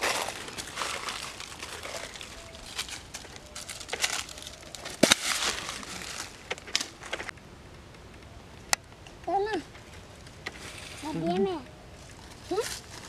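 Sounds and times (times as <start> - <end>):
dry leaves rustling and crackling: 0.0 - 7.4, 9.8 - 13.0.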